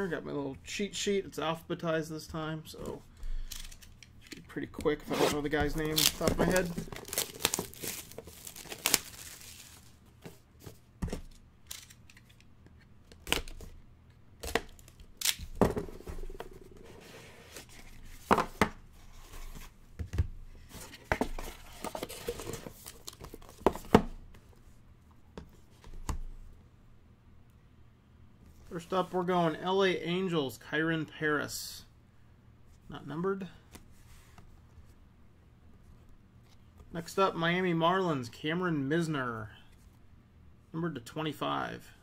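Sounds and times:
cards rustling: 2.8 - 13.8
shrink-wrap tearing: 5.0 - 9.9.

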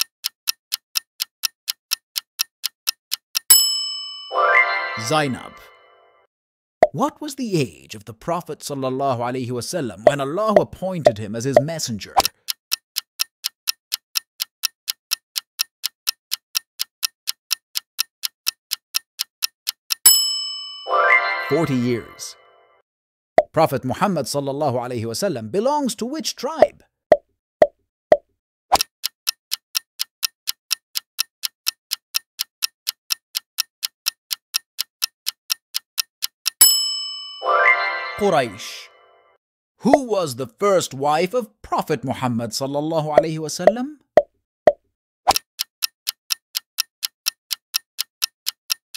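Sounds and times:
clock-like ticking: 0.0 - 4.3, 10.0 - 20.9, 28.1 - 37.0, 43.1 - 43.8, 45.3 - 48.9
ringing chime: 3.5 - 6.1, 20.1 - 22.6, 36.6 - 39.2
pop sound effect: 26.6 - 28.8.

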